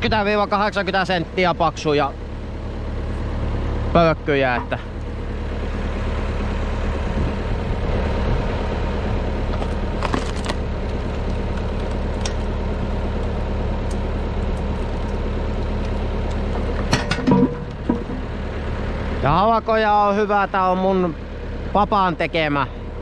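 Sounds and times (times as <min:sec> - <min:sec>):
tractor engine running: 0:00.0 - 0:23.0
log cracking: 0:09.4 - 0:18.5.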